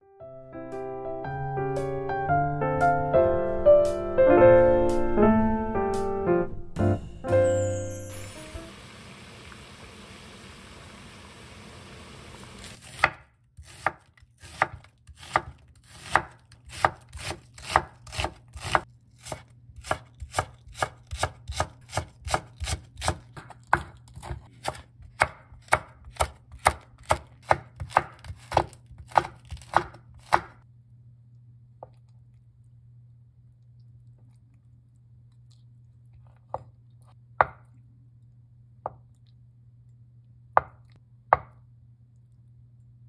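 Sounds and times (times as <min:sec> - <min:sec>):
boiling water hissing: 0:08.3 - 0:12.8
knife chopping on wooden board: 0:12.7 - 0:30.6, 0:37.4 - 0:37.7, 0:40.6 - 0:41.6.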